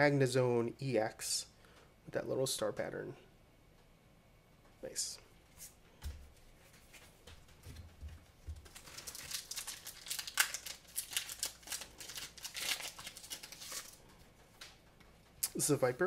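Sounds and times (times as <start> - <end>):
foil wrapper crinkling: 8.5 - 14.8.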